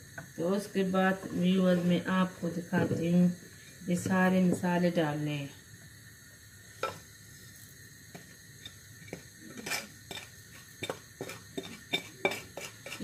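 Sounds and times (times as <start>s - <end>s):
spoon and plate clinking on pot: 11.6s - 13.0s.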